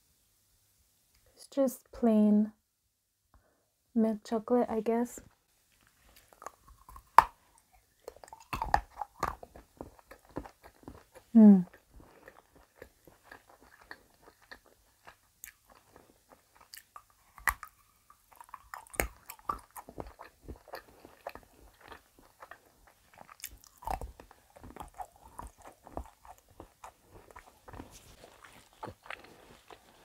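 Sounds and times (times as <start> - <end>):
wet chewing mouth sounds: 5.8 - 30.0
biting chocolate: 6.1 - 30.0.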